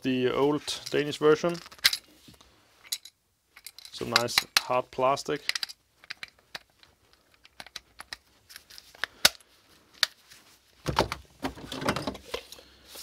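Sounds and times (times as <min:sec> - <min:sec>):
plugs and cables clattering: 0:00.7 - 0:04.8, 0:05.4 - 0:10.2, 0:10.8 - 0:12.6
plastic plugs clicking: 0:05.4 - 0:09.4.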